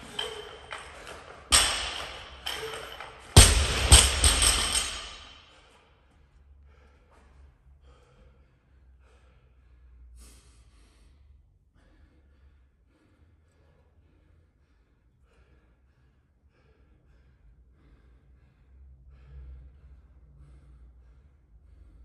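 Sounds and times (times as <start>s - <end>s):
barbell plates rattling and ringing: 0.0s - 5.5s.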